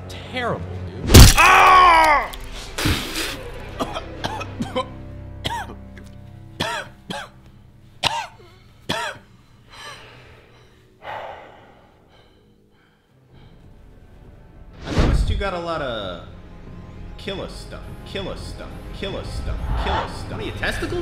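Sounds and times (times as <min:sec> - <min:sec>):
low background music: 0:00.0 - 0:21.0
man coughing and spluttering: 0:02.8 - 0:05.8, 0:06.6 - 0:07.3, 0:08.0 - 0:09.2
heavy breath: 0:08.4 - 0:13.8.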